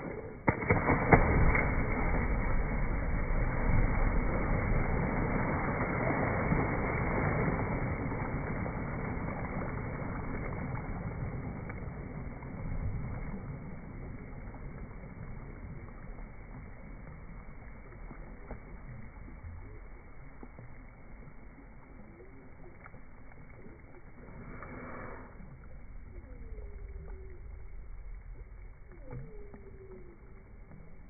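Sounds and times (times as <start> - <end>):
dog splashing in water: 0.4 - 8.0.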